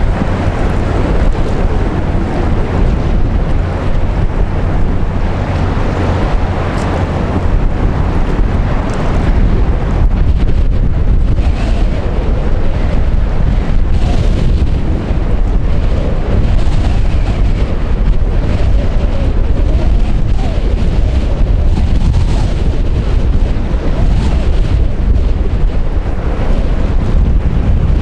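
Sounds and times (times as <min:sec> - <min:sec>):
container ship passing: 0:00.0 - 0:21.7
wind buffeting microphone: 0:00.0 - 0:28.0.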